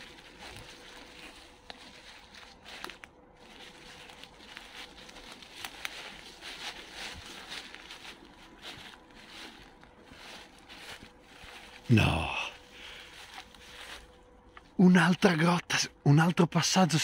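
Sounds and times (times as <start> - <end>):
twigs snapping: 0.0 - 9.9
footsteps through dry leaves: 0.0 - 14.8.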